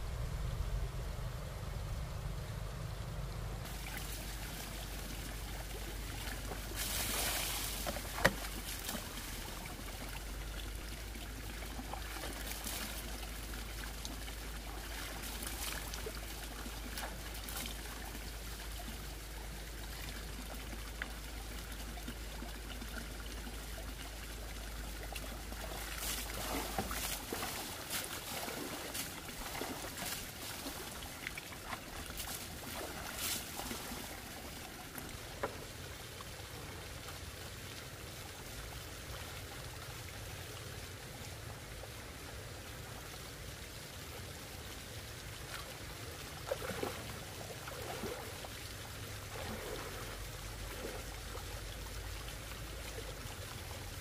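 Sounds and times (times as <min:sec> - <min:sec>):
water trickling into bucket: 0:03.6 - 0:40.3.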